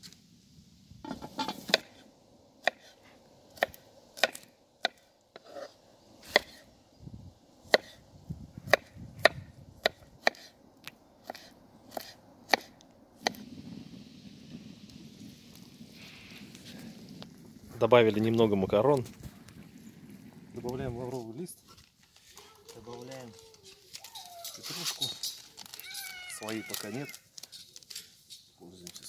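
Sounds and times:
knife chopping on wooden board: 8.7 - 10.5.

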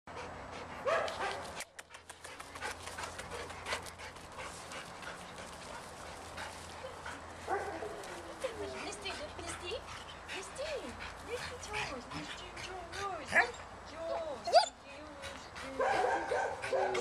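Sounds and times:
dog panting: 0.1 - 17.0
dog whining: 14.4 - 14.8.

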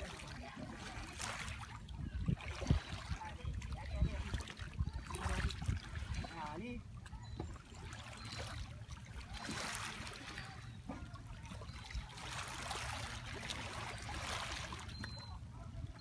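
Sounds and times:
waves lapping over pebbles: 0.0 - 15.2.

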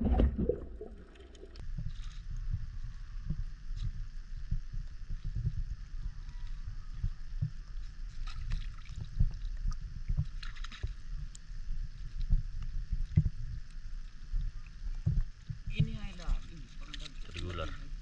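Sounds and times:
small water splashes: 0.0 - 2.2, 6.4 - 12.2, 13.0 - 18.0
seawater sloshing and lapping: 0.0 - 2.3, 6.1 - 18.0
low rumble: 0.0 - 7.6.

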